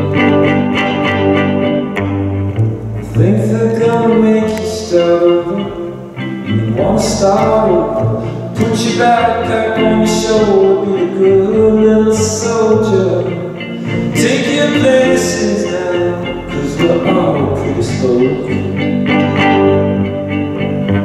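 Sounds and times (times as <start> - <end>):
strummed guitar: 0.0 - 21.0
man singing: 3.1 - 19.5.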